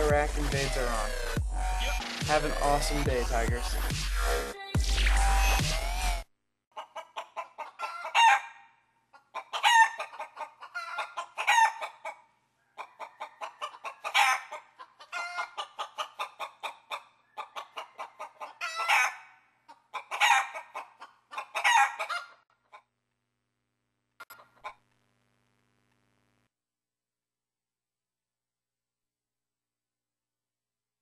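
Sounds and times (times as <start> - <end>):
chicken clucking and squawking: 6.7 - 22.9.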